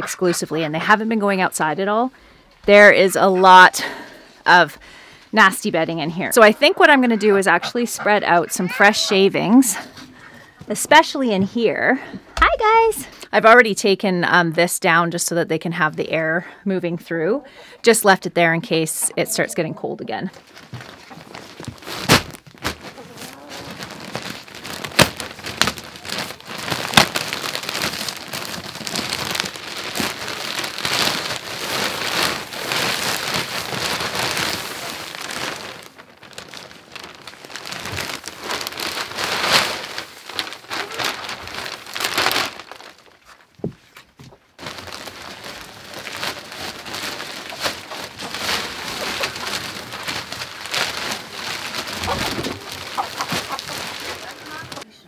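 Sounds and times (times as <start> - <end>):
plastic crinkling: 12.4 - 13.2, 20.3 - 54.9
wood shavings rustling: 20.4 - 44.0, 44.6 - 54.9.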